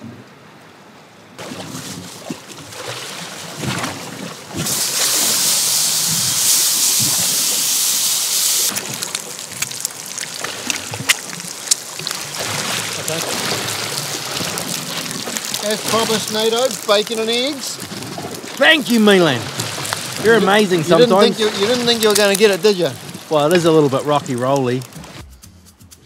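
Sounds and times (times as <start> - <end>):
bacon sizzling in a frying pan: 4.7 - 12.1, 12.9 - 18.1
fat spitting and crackling: 8.6 - 26.0.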